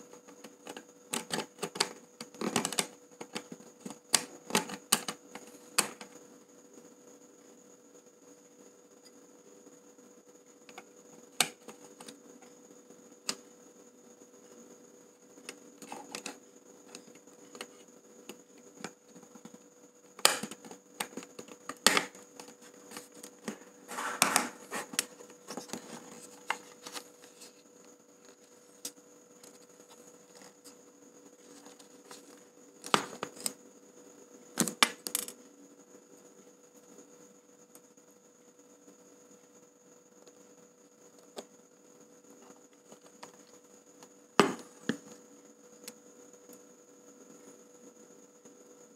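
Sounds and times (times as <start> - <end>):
faint steady hum: 0.0 - 48.9
rustling scrape: 23.8 - 27.6.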